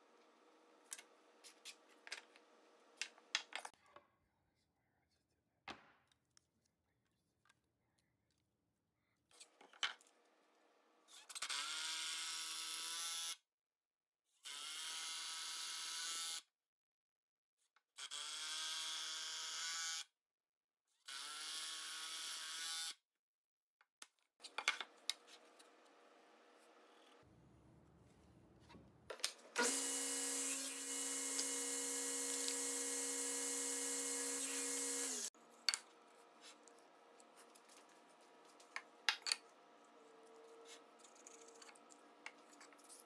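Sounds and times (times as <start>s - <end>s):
power drill whining: 29.6s - 35.4s.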